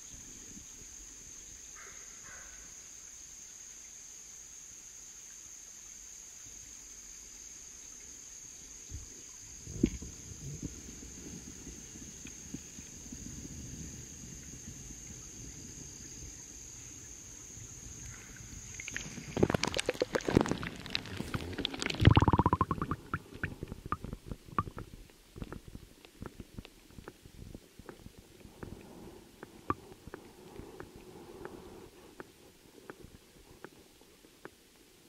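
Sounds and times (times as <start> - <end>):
insects trilling: 0.0 - 24.8
underwater splashing and bubbling: 18.5 - 26.4
bubbles popping and clicking: 18.8 - 25.6.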